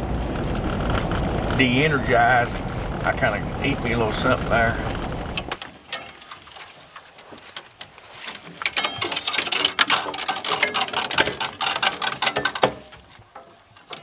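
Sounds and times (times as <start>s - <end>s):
metallic clicking and rattling: 4.0s - 14.0s.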